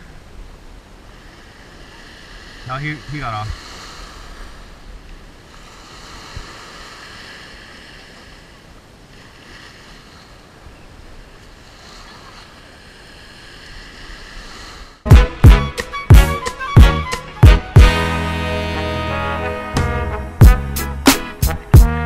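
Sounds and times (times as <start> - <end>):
small waves washing over sand: 0.0 - 15.0.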